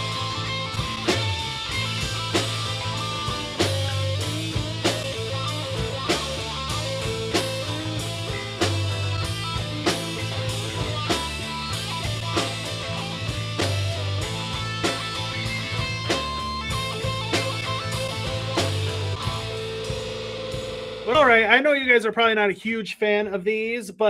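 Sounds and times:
rock music: 0:00.0 - 0:22.4.

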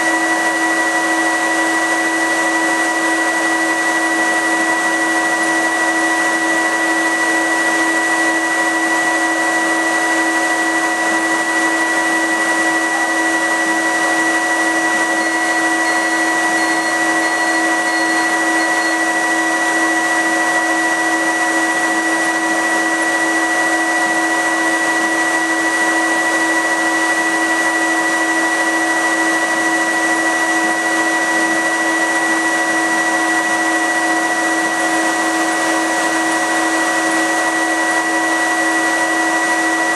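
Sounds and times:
fume filter blower with whine: 0:00.0 - 0:39.9
faint high chirps: 0:15.0 - 0:19.2.

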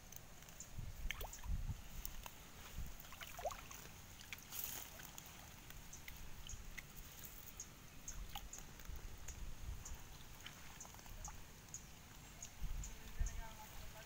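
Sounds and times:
water splashing and dripping: 0:00.1 - 0:07.5, 0:08.1 - 0:12.6
small ticks: 0:04.3 - 0:13.2.

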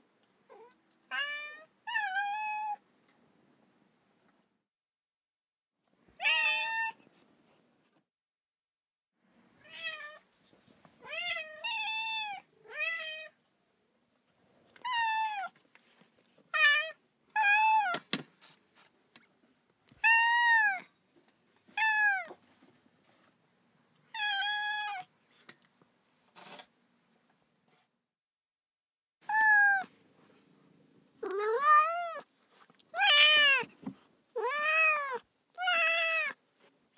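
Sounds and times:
cat meowing: 0:00.5 - 0:02.8, 0:06.2 - 0:07.0, 0:09.6 - 0:10.2, 0:20.0 - 0:20.9, 0:21.8 - 0:22.4, 0:24.1 - 0:25.1, 0:29.2 - 0:29.9, 0:31.2 - 0:32.3, 0:32.9 - 0:33.7, 0:34.4 - 0:36.4.

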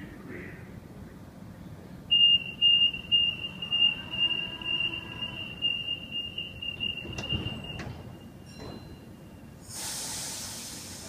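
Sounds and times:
high-pitched door warning tone: 0:02.1 - 0:09.6.

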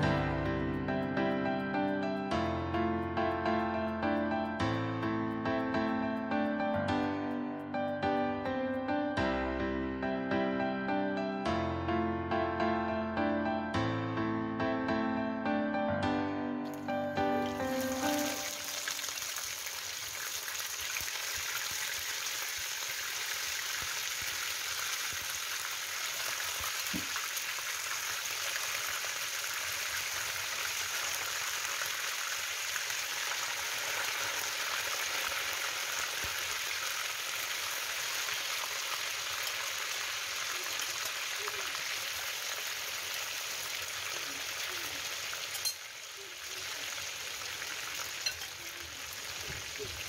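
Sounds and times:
fish sizzling in oil: 0:16.7 - 0:50.0.

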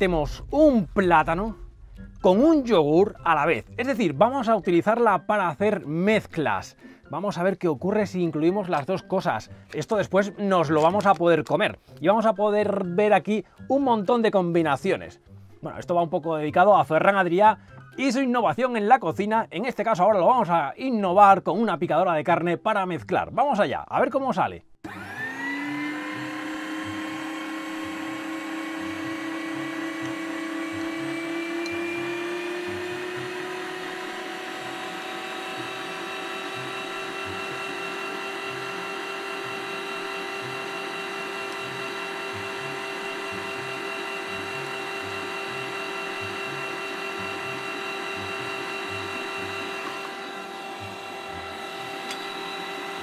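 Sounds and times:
meat grinder motor whining: 0:24.8 - 0:53.0.

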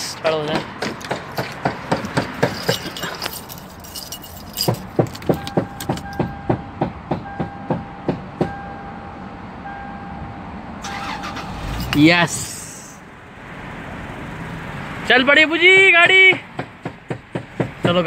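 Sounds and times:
car ignition clicking: 0:04.6 - 0:06.4, 0:10.8 - 0:12.0
dashboard warning beep: 0:05.3 - 0:11.5.

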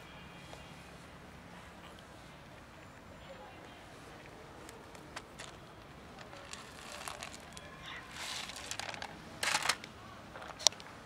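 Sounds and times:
kibble pouring onto gravel: 0:06.4 - 0:09.8.

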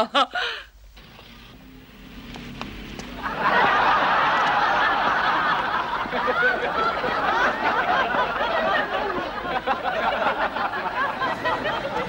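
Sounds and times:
audience laughing: 0:03.0 - 0:12.0.

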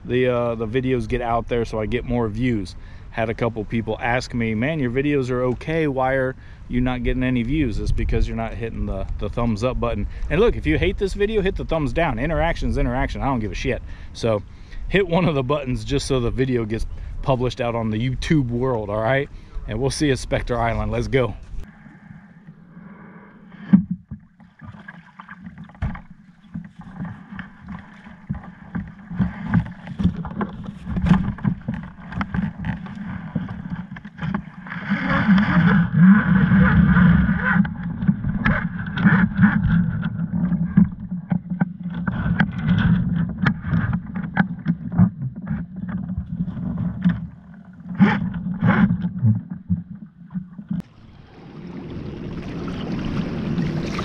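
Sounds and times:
water sloshing against hull: 0:00.0 - 0:54.0.

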